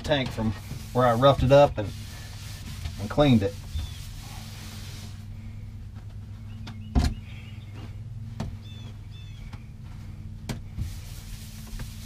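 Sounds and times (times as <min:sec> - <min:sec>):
steady low hum: 0:00.0 - 0:12.0
paper towel wiping: 0:00.3 - 0:05.3, 0:10.7 - 0:12.0.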